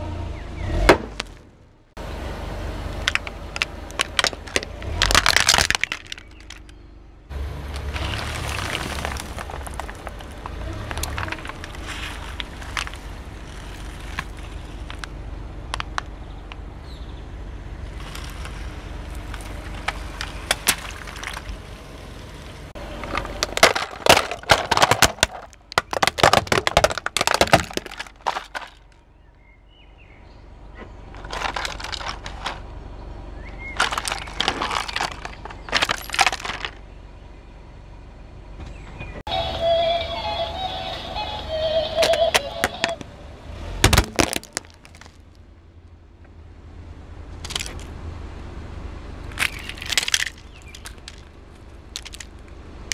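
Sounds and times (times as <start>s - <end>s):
scattered crackling: 2.9s - 6.7s, 7.8s - 15.1s, 17.9s - 28.9s, 33.7s - 36.8s
plastic toys cracking and snapping: 2.9s - 6.8s, 7.8s - 15.1s, 15.7s - 16.6s, 18.0s - 21.6s, 23.0s - 29.0s, 31.2s - 32.6s, 33.8s - 36.8s, 43.8s - 45.3s, 47.4s - 47.9s, 49.3s - 52.6s.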